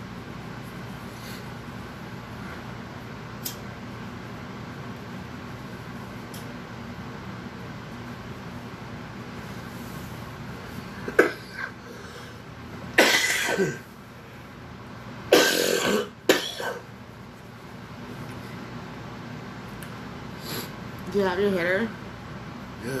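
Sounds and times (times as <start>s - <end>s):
person coughing: 11.1s - 11.7s, 13.0s - 13.9s, 15.3s - 16.9s.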